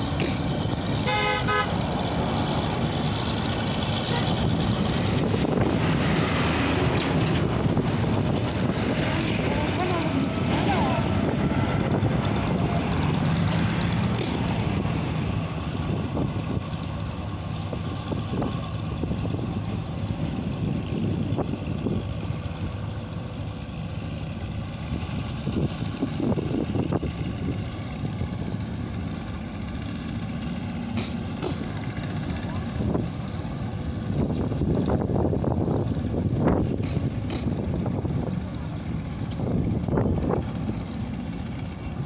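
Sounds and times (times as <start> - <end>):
road traffic rumble: 0.0 - 42.0.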